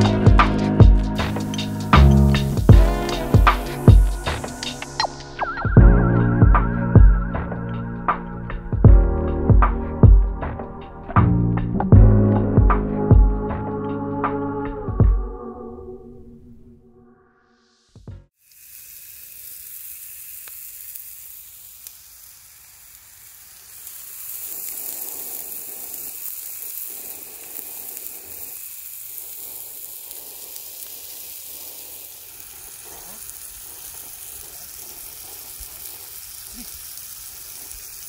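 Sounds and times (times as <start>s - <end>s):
meat patty sizzling in frying pan: 0.0s - 5.4s, 18.4s - 38.0s.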